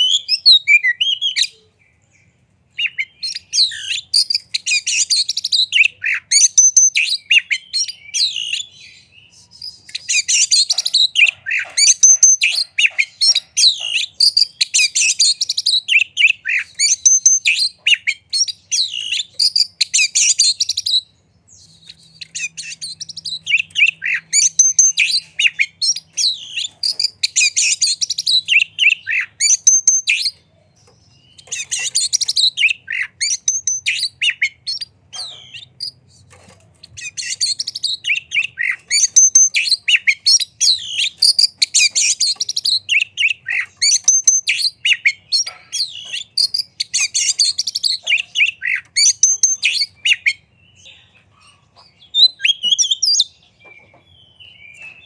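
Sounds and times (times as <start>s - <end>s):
bird singing whistled notes: 0.0s - 1.8s, 2.7s - 36.3s, 37.0s - 50.9s, 52.0s - 55.0s.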